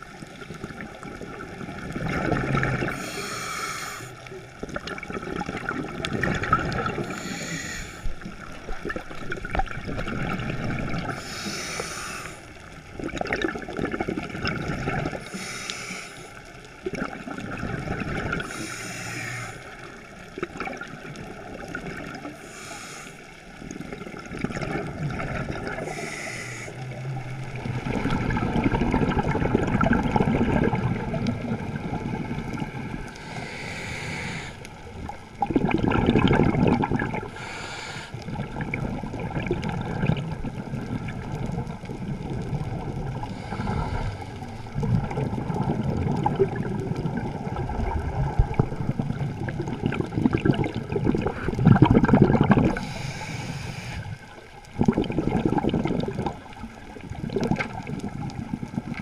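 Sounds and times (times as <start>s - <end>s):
underwater bubbling: 0.0s - 59.0s
scuba regulator breathing: 2.8s - 4.3s, 7.0s - 8.2s, 11.1s - 12.6s, 15.2s - 16.5s, 18.4s - 19.9s, 22.3s - 23.4s, 25.7s - 27.6s, 33.0s - 34.8s, 37.2s - 38.4s, 43.2s - 44.8s, 52.6s - 54.5s.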